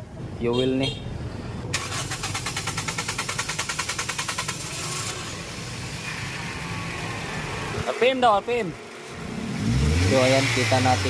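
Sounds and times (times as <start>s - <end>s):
car engine idling: 1.7s - 11.0s
starter motor cranking: 1.8s - 5.2s.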